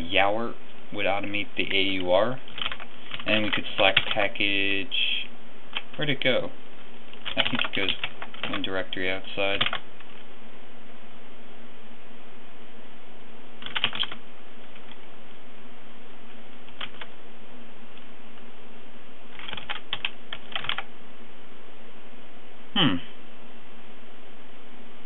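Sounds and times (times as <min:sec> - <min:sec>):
keyboard typing: 0:02.5 - 0:04.2, 0:07.1 - 0:08.7, 0:09.6 - 0:10.2, 0:13.6 - 0:15.0, 0:16.7 - 0:17.1, 0:19.3 - 0:20.9.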